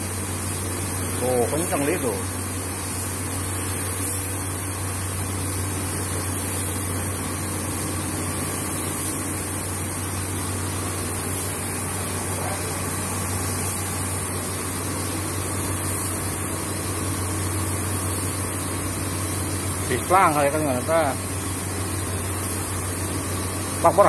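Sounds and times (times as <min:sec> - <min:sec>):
machine humming with hiss: 0:00.0 - 0:24.0.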